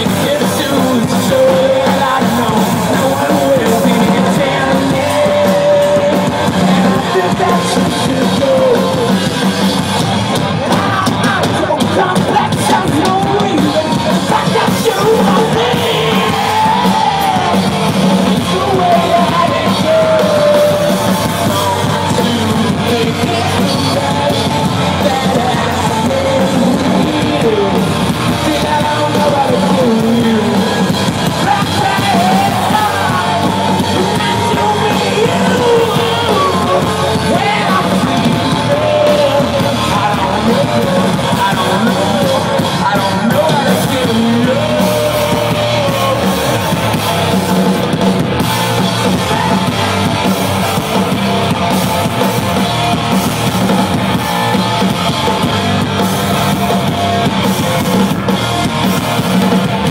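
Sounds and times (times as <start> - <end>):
live hard rock band: 0.0 - 59.9
person singing and yelling: 0.0 - 59.9.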